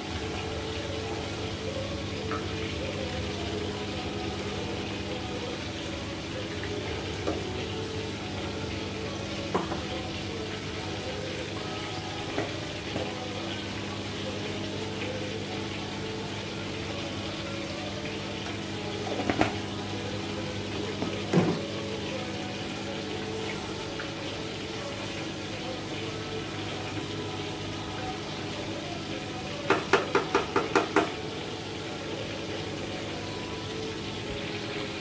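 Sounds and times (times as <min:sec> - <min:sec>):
steady kitchen hum: 0:00.0 - 0:35.0
sharp taps on pot: 0:29.7 - 0:31.1.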